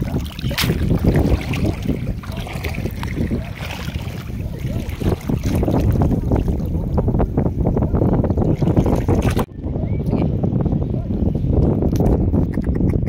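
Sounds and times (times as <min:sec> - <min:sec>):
shallow seawater: 0:00.0 - 0:09.5
wind buffeting microphone: 0:00.0 - 0:13.0.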